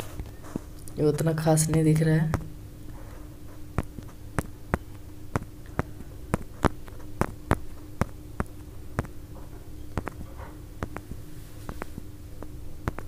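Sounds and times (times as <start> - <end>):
low electrical hum: 0.0 - 13.0
fingertip taps on touchscreen: 3.8 - 9.2, 10.0 - 13.0.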